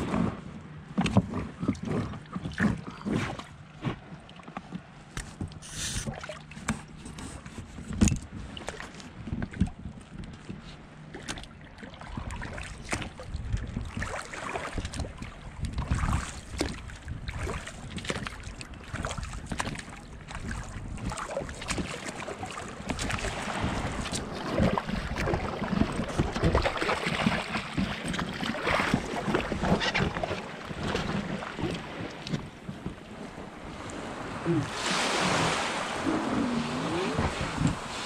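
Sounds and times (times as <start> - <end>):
oars dipping and splashing: 0.0 - 38.0
wind buffeting microphone: 12.1 - 18.4, 22.4 - 38.0.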